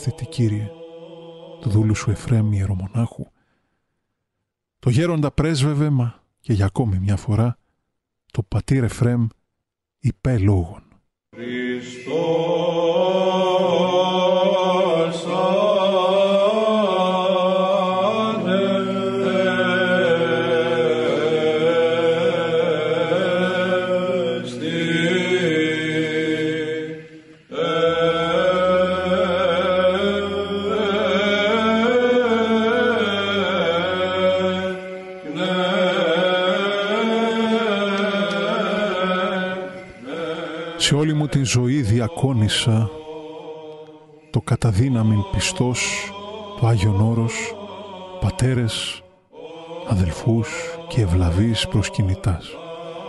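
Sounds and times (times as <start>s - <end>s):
low held vocal drone: 0.0s - 2.8s, 11.4s - 53.0s
chanted melody: 11.4s - 43.8s.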